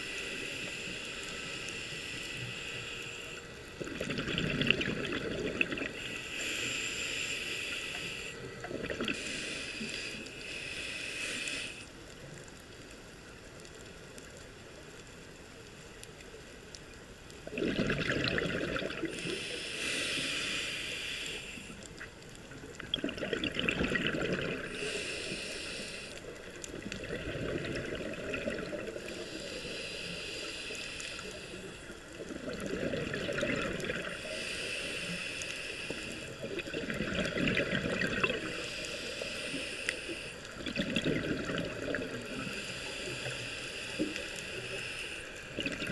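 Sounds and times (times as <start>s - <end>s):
diver breathing through regulator: 0.0s - 3.8s, 5.1s - 12.0s, 18.6s - 22.0s, 24.0s - 36.8s, 37.6s - 45.9s.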